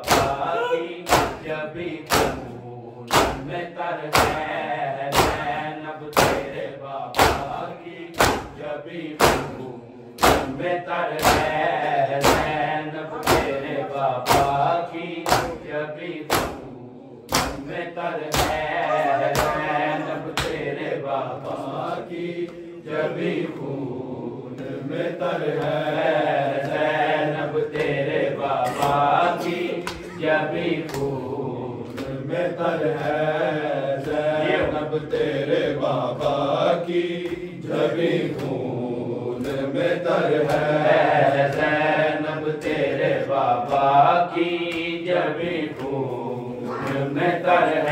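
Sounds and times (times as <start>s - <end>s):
hands slapping chests: 0.0s - 8.6s, 9.2s - 9.6s, 10.2s - 15.7s, 16.3s - 16.7s, 17.3s - 20.7s, 27.8s - 28.0s, 28.6s - 31.2s, 31.8s - 32.3s, 34.0s - 38.7s, 39.4s - 39.7s, 40.3s - 41.9s, 43.6s - 45.0s, 45.6s - 46.1s, 46.7s - 47.2s
men chanting a lament: 0.0s - 47.9s.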